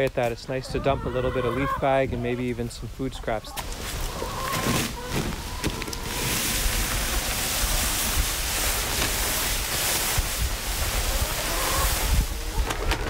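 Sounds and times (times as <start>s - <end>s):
dry leaves pouring out: 3.6s - 13.0s.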